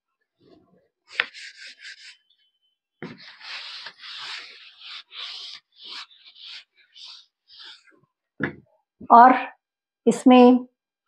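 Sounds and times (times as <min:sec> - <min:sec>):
eraser scrubbing chalkboard: 0:01.1 - 0:02.4, 0:03.0 - 0:08.0
eraser knocking on chalkboard: 0:03.0 - 0:07.8.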